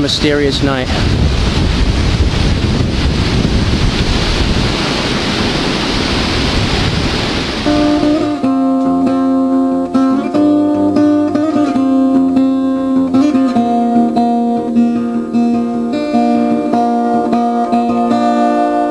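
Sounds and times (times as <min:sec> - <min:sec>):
wind rushing on microphone: 0:00.0 - 0:08.5
acoustic guitar music: 0:07.5 - 0:18.9.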